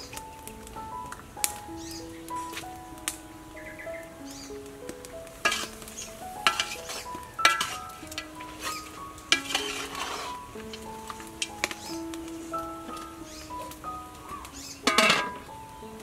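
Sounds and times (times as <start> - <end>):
gentle instrumental melody: 0.0 - 16.0
swishing hiss: 5.4 - 14.0
ladle clinking against metal pot: 5.5 - 5.7, 6.5 - 10.3, 14.8 - 15.4.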